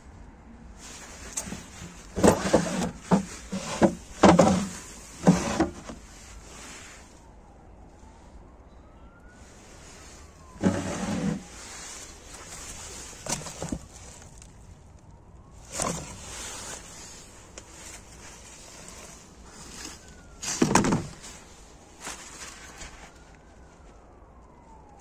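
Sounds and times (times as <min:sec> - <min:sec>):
distant siren: 0:00.1 - 0:25.0
knocks and scrapes on metal dumpster: 0:01.4 - 0:06.0, 0:10.6 - 0:11.5, 0:20.4 - 0:21.3.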